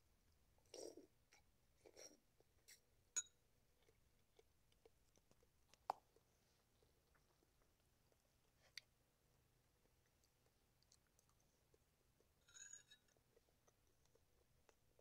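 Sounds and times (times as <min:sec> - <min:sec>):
soft chewing: 0:00.2 - 0:03.0, 0:03.6 - 0:15.0
spoon clinking on ceramic bowl: 0:03.2 - 0:03.4, 0:12.4 - 0:13.1.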